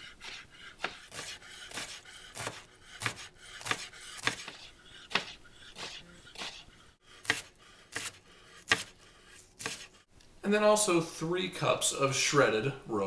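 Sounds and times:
knife shredding cabbage on board: 0.2 - 6.6, 7.2 - 10.0.

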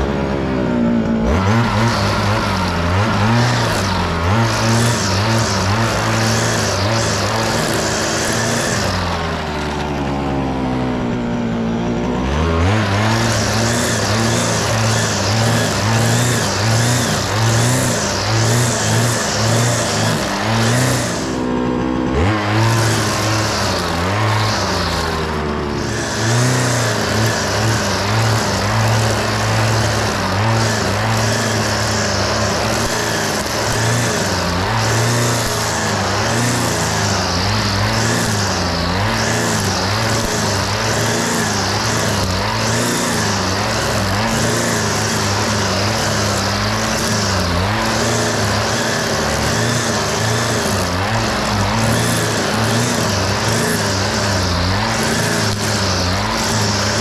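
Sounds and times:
string trimmer motor cutting grass: 0.0 - 57.0.

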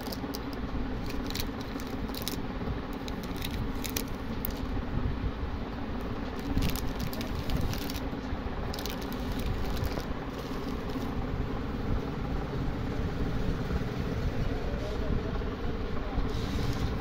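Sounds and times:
plastic wrappers crinkling: 0.0 - 4.7, 6.3 - 11.2
low background rumble: 0.0 - 17.0.

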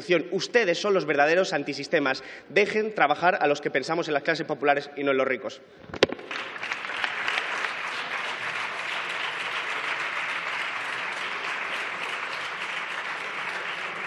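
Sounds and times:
people applauding: 6.0 - 14.0.

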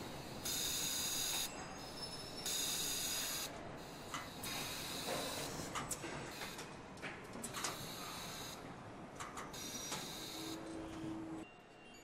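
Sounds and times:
factory hum: 0.0 - 11.5
compressed air hissing: 2.5 - 5.7.

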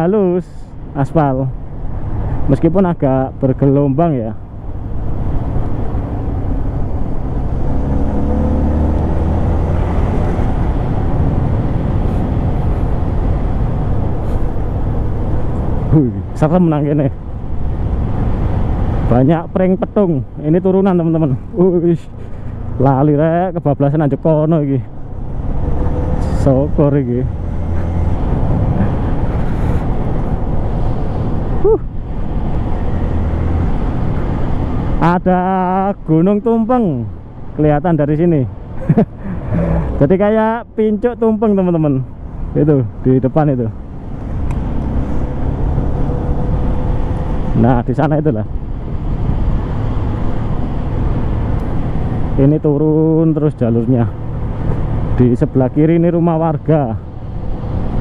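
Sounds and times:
motorcycle engine hum: 0.0 - 58.0
wind and road noise: 0.0 - 58.0
rising and falling tone: 7.1 - 11.8.

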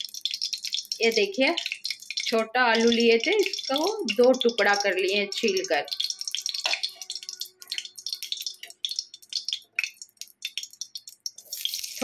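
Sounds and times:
hot oil crackling and popping: 0.0 - 12.0.

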